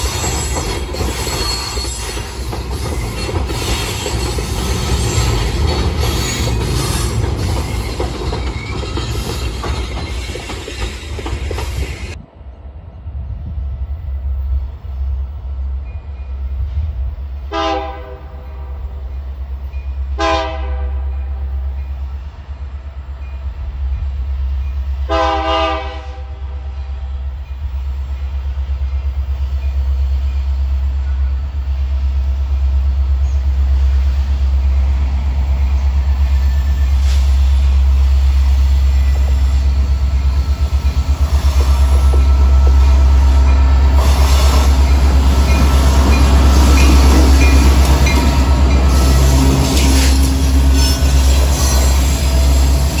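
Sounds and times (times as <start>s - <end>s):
deep train rumble: 0.0s - 53.0s
locomotive horn blasts: 17.5s - 19.0s, 20.1s - 21.4s, 25.0s - 27.0s.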